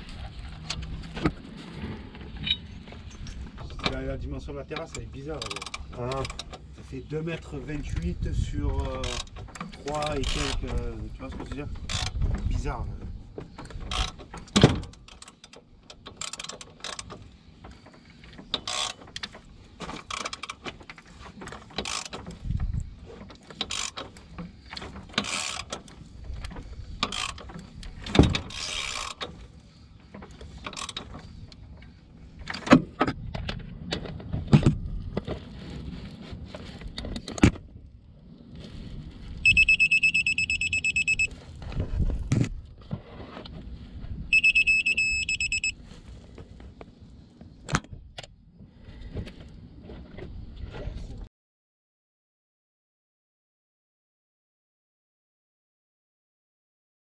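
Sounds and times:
ratchet clicks: 28.5 - 29.3
rapid electronic beeping: 39.5 - 41.3, 44.4 - 45.7.

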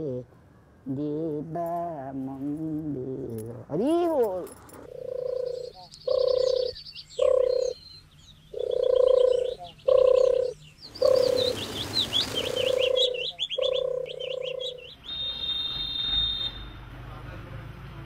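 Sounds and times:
small birds chirping: 0.0 - 16.6
low animal calls: 4.9 - 7.8, 8.5 - 15.5
rushing hiss: 10.9 - 13.0.

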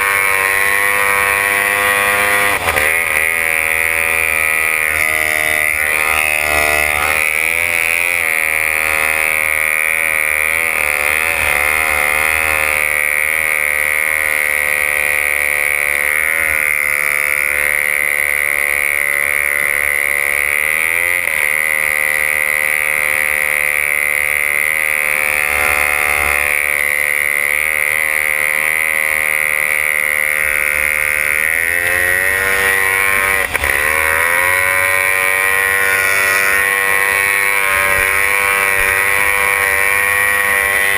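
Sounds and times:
outboard engine running hard: 0.0 - 40.9.

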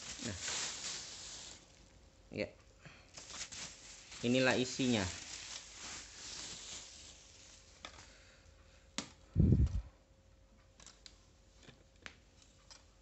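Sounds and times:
plastic wrapping rustling: 0.0 - 2.0, 3.1 - 8.0.

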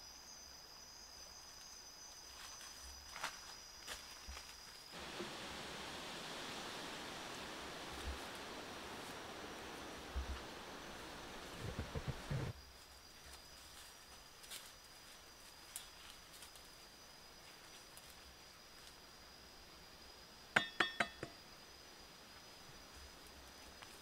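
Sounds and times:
high-pitched insect tone: 12.5 - 24.0.

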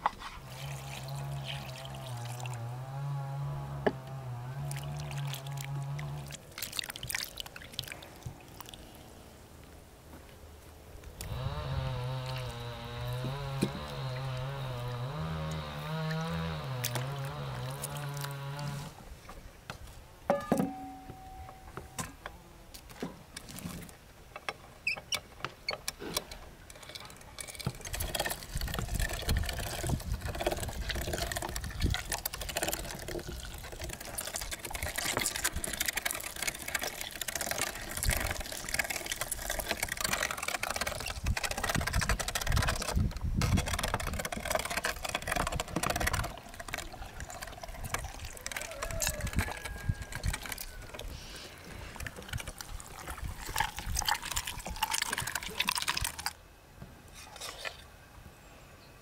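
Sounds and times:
meat grinder clicking and scraping: 26.7 - 51.1.

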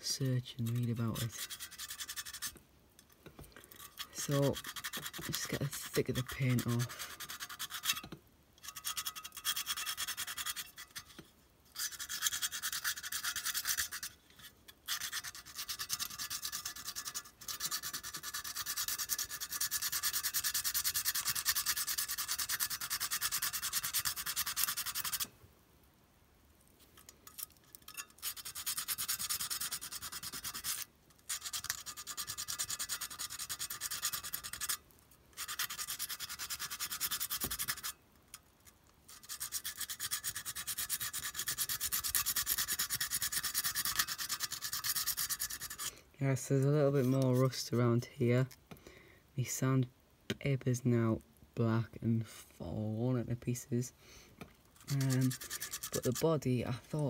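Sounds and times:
sandpaper scratching on metal: 0.4 - 2.6, 3.8 - 25.3, 27.9 - 34.8, 35.4 - 38.0, 39.1 - 45.9, 54.8 - 57.0.

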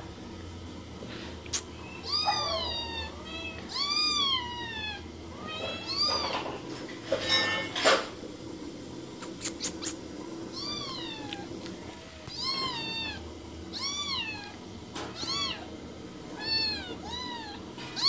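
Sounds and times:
cat meowing: 1.8 - 6.5, 9.5 - 11.6, 12.2 - 15.7, 16.4 - 18.0.

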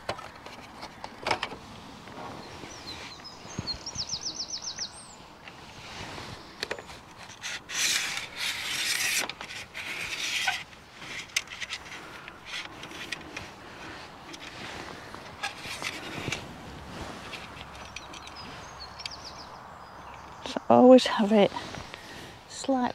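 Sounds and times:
metal leg rubbing and scraping: 5.5 - 19.3.

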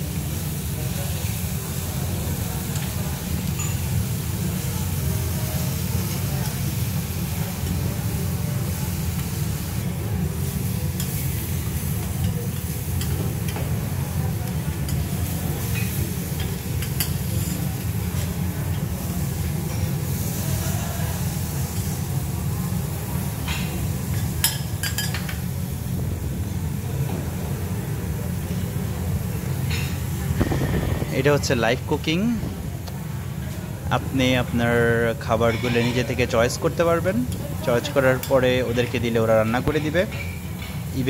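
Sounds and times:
food sizzling on a griddle: 0.0 - 32.4, 33.0 - 41.0
low hum: 30.4 - 32.9.

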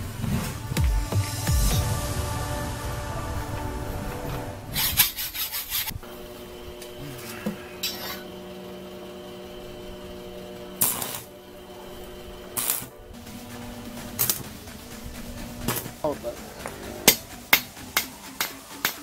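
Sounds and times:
arc welder buzzing: 0.0 - 19.0
hacksaw cutting metal tube: 4.7 - 6.0, 7.8 - 8.3, 10.8 - 11.3, 16.7 - 19.0.

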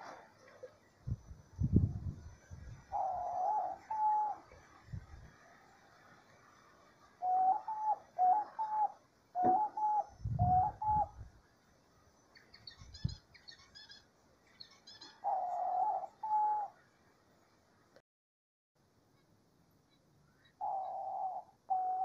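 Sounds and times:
dove cooing: 2.9 - 4.6, 7.2 - 11.2, 14.9 - 16.8, 20.5 - 22.0.

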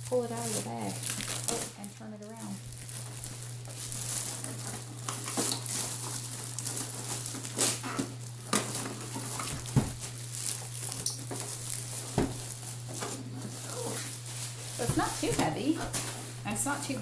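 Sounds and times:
plastic bag rustling: 0.0 - 17.0
handling knocks: 9.4 - 10.0, 12.1 - 12.5, 14.8 - 16.0.

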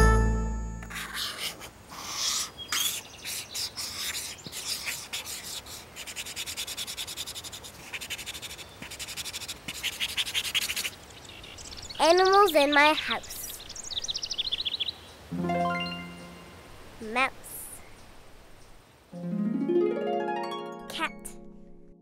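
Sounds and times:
crayon scratching on paper: 0.9 - 1.7, 2.8 - 11.0.

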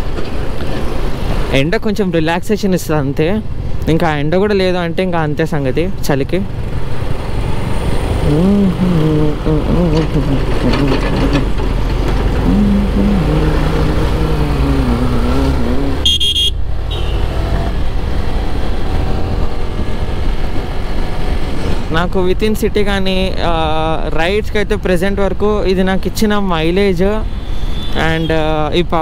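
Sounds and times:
traffic noise: 0.0 - 29.0
motorcycle engine: 5.7 - 21.9
vehicle horn honking: 16.0 - 17.5.

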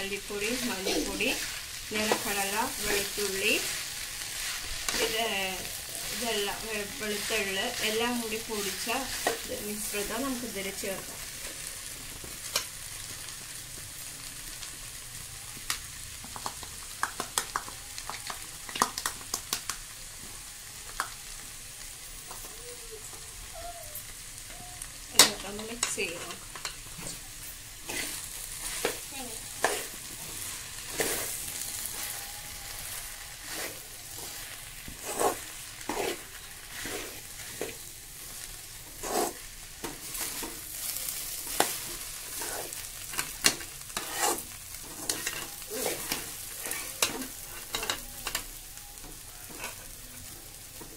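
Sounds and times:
okra sizzling in a pan: 0.0 - 50.9
metal spatula scraping a pan: 27.8 - 48.5, 49.4 - 50.0.

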